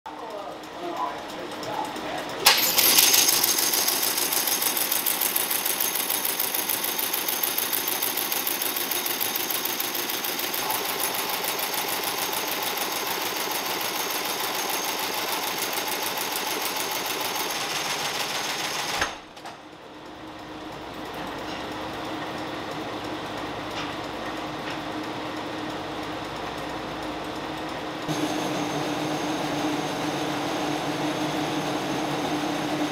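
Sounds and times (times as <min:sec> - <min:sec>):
stitching machine sewing: 0:01.2 - 0:19.3.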